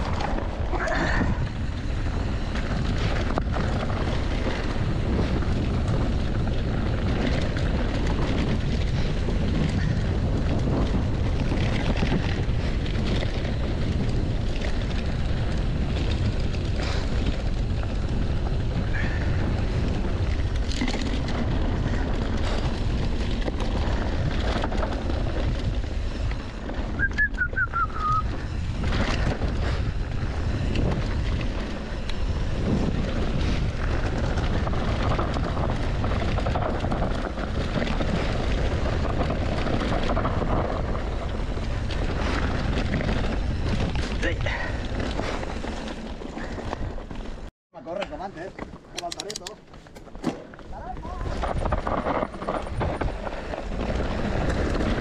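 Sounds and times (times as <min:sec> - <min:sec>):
wind buffeting microphone: 0:00.0 - 0:47.5, 0:48.1 - 0:55.0
bike tyres rolling on dirt: 0:00.0 - 0:55.0
bike knocking over rough ground: 0:28.4 - 0:55.0.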